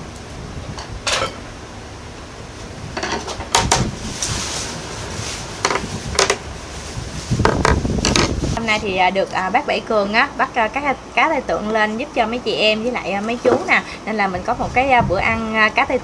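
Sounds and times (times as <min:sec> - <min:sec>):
dishes and cutlery clinking: 0:01.1 - 0:01.4.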